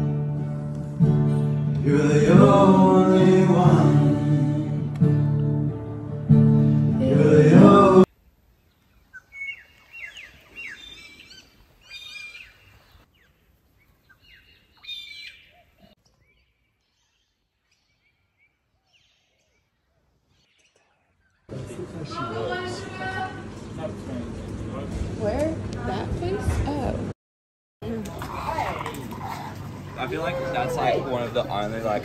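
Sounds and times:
acoustic guitar: 0.0 - 8.1
worship music with singing: 1.3 - 5.8, 6.6 - 8.1
bird chirps: 8.6 - 21.5.

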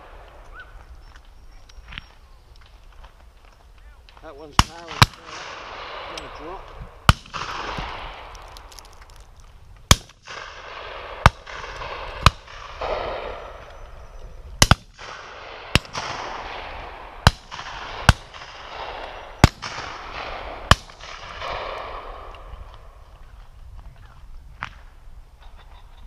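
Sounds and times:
shotgun shots with rolling echo: 4.4 - 8.8, 9.9 - 13.8, 14.6 - 22.9.

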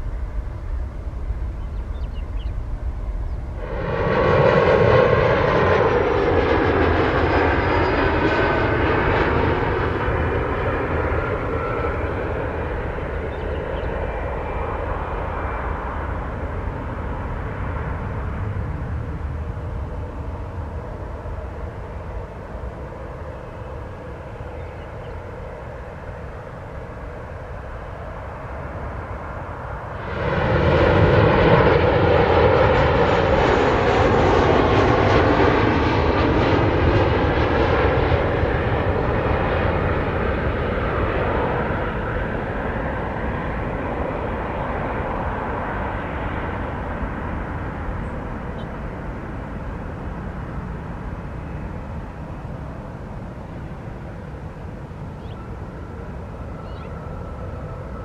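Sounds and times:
jet engine whine and rumble: 0.0 - 58.0
loud jet roar: 2.8 - 21.6, 28.4 - 51.7.

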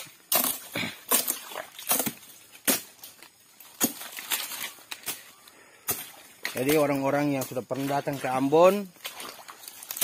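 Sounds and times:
machete chopping: 0.0 - 3.1, 3.7 - 5.2.

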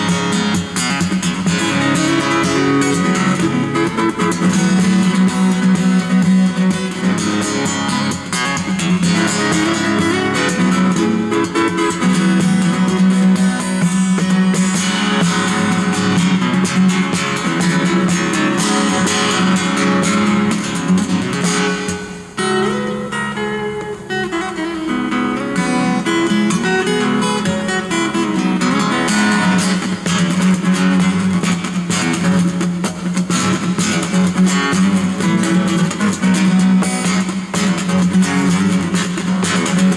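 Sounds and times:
fingerstyle acoustic guitar: 0.0 - 39.9
hits on guitar body: 29.4 - 39.9.

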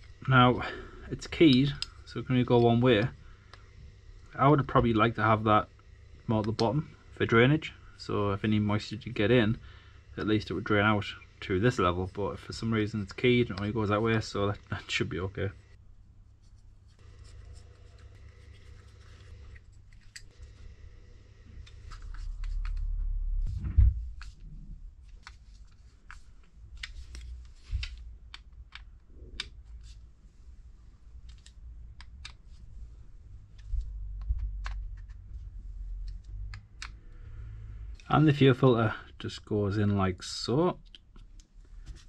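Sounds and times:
light clicks and taps of small parts: 25.0 - 30.0, 36.0 - 37.0.

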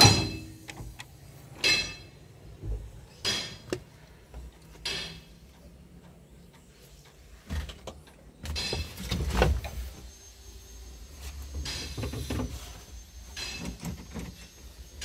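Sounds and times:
clunks and rattles in cab: 0.0 - 5.2, 7.4 - 10.0, 11.5 - 14.5.

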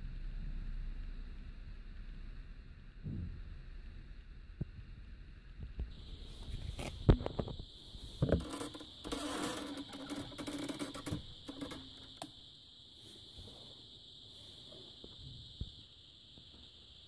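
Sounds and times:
high-pitched whine: 0.0 - 16.0
small clicks: 5.8 - 12.4
rustling and scraping: 6.0 - 12.3.

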